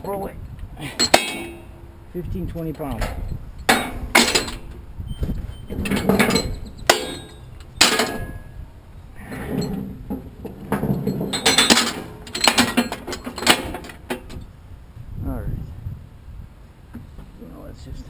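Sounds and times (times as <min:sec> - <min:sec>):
steel chains clanking and rattling: 0:00.8 - 0:02.0, 0:02.7 - 0:08.6, 0:09.2 - 0:14.5.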